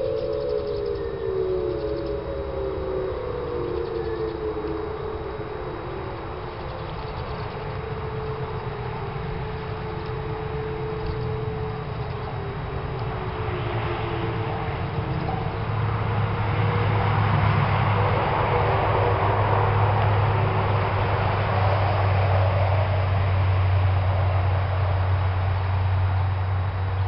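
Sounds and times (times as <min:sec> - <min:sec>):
distant warning siren: 0:00.0 - 0:27.0
low steady rumble: 0:00.0 - 0:27.0.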